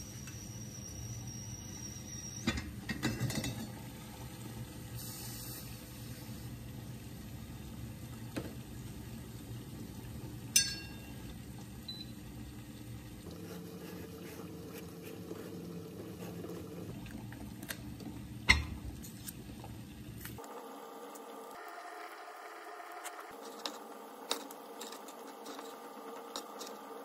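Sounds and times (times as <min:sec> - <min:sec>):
water boiling in saucepan: 0:00.0 - 0:27.0
metal spoon clinking on pot: 0:10.5 - 0:11.1.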